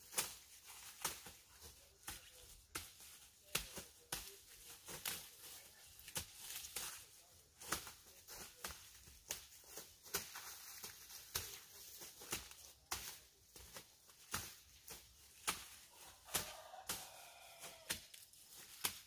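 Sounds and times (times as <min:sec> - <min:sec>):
dry corn stalks crackling: 0:00.0 - 0:19.0.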